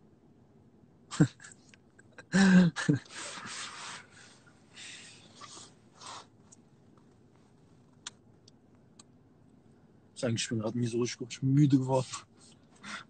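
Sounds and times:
breathy noises and rustling: 0:01.2 - 0:08.4, 0:11.8 - 0:13.0.

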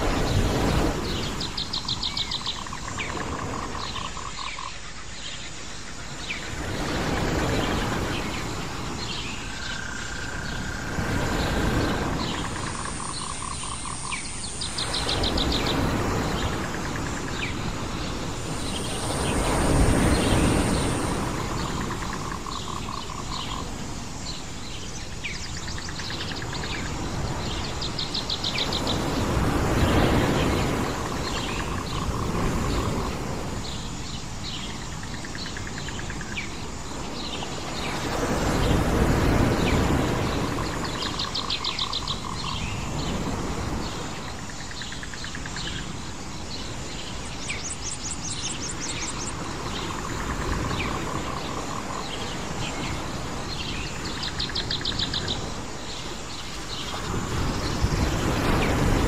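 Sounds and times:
low rushing surf: 0:00.0 - 0:03.9, 0:05.3 - 0:35.2, 0:35.8 - 0:59.0.

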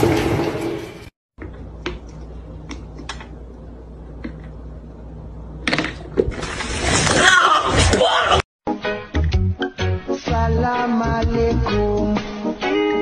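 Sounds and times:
low room hum: 0:01.4 - 0:06.8.

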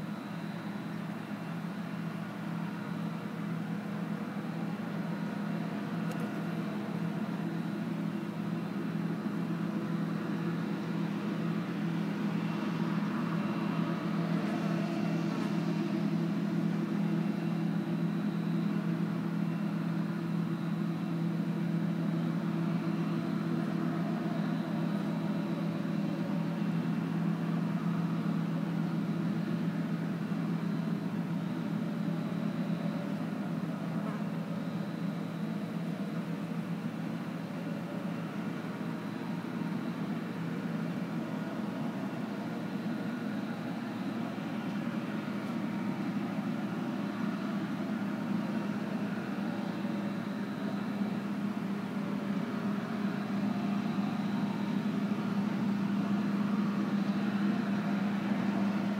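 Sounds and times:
combine harvester drone: 0:00.0 - 0:58.9.

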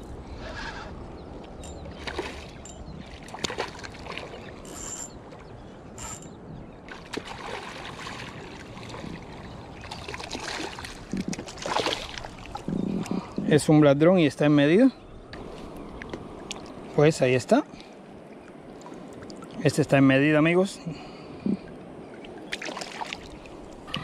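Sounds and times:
fish splashing in shallow water: 0:01.4 - 0:06.2, 0:06.8 - 0:13.3, 0:21.6 - 0:24.0.

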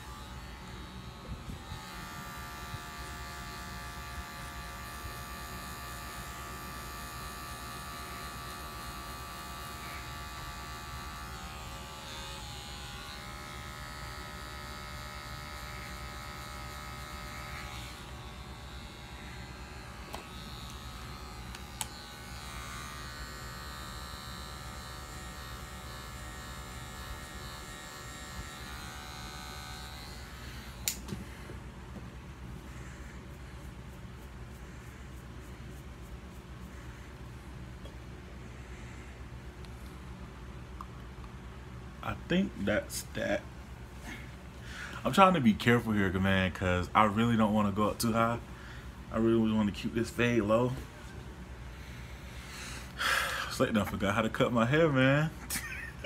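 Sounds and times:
electric hair clippers buzzing: 0:00.0 - 0:46.2, 0:47.1 - 0:56.0
sharp click: 0:30.8 - 0:31.2.

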